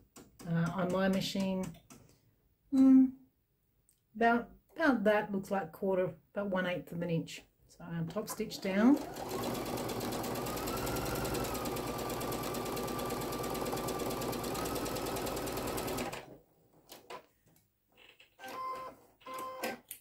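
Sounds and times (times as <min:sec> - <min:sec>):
sewing machine running: 0:08.5 - 0:16.3.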